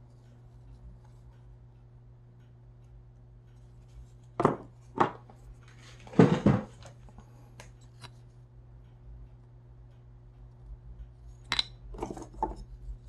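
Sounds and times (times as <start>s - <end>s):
steady low hum: 0.0s - 13.0s
hard objects knocking and clattering: 4.4s - 5.3s, 6.1s - 6.8s, 11.5s - 12.6s.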